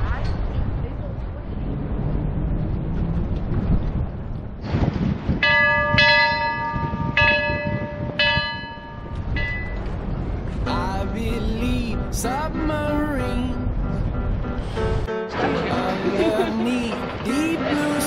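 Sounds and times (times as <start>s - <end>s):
wind rumble on microphone: 0.0s - 15.1s
ship's bell ringing: 5.4s - 10.0s.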